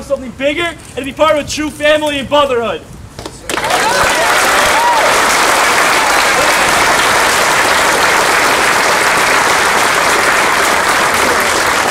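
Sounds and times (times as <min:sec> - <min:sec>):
crowd applauding: 0:03.5 - 0:11.9
faint cheer: 0:03.6 - 0:07.4.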